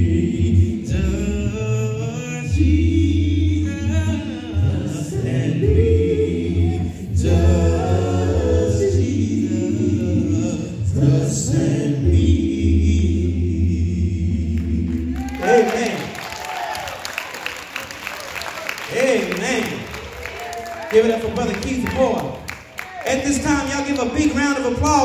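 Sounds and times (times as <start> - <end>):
male vocal group singing a cappella: 0.0 - 16.2.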